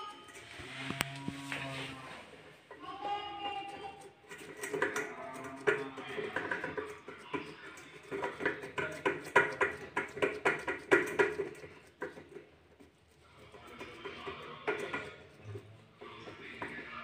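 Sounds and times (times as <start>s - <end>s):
hands patting dough on metal: 4.3s - 17.0s.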